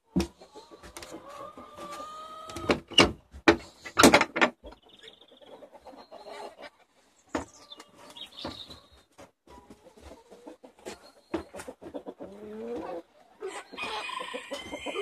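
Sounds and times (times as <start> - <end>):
chickens clucking: 0.0 - 15.0
high bird calls: 7.3 - 8.9.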